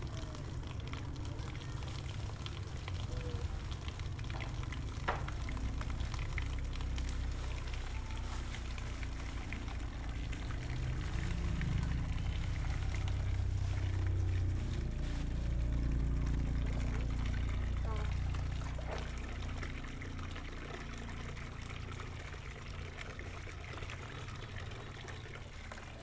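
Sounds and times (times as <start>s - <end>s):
food frying in a pan: 0.0s - 26.0s.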